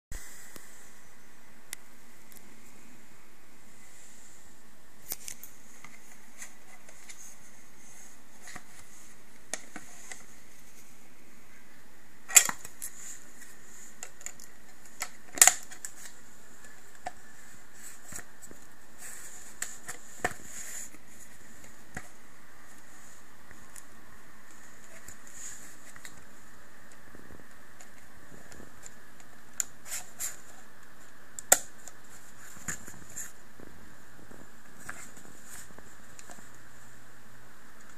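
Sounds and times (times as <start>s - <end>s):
steady hiss: 0.1s - 37.9s.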